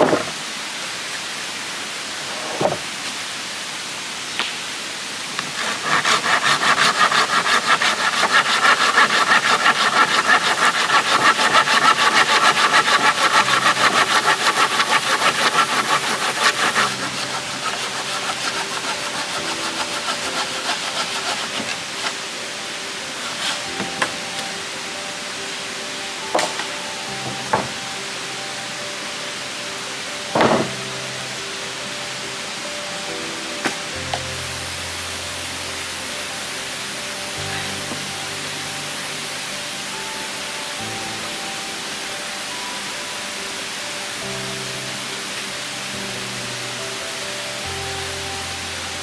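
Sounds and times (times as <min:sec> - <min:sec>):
hand saw cutting wood: 0:05.4 - 0:22.2, 0:23.2 - 0:24.2
light scraping: 0:05.4 - 0:22.2.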